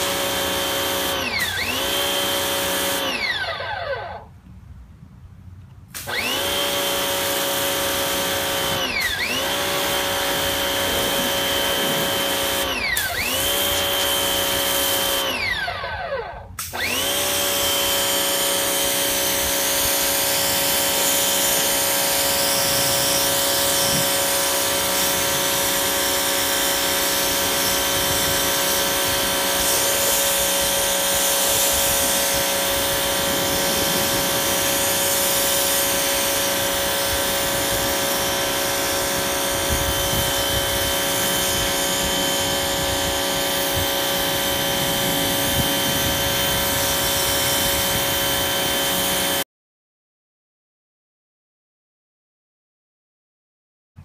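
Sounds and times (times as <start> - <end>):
pressure washer motor whine: 0.0 - 4.3, 6.0 - 49.4
water spray hiss: 18.0 - 49.4.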